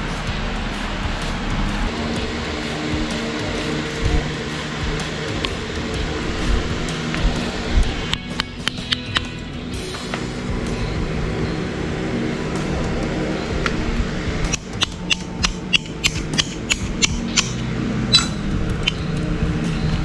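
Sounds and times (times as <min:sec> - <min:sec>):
background music: 0:00.0 - 0:20.0
metallic clicks of hand tools: 0:08.1 - 0:09.4, 0:14.5 - 0:19.3.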